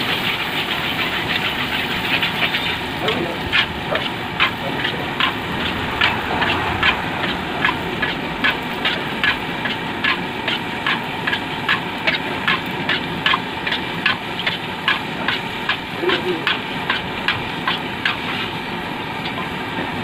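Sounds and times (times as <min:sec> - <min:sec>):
gas burner rumble: 0:00.0 - 0:20.0
puris sizzling in hot oil: 0:00.0 - 0:20.0
steady ticking: 0:02.2 - 0:18.2.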